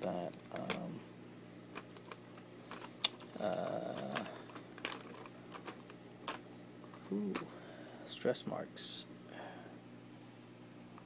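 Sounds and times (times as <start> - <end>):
plastic tray clicks and crackles: 0.3 - 0.9, 3.9 - 7.5.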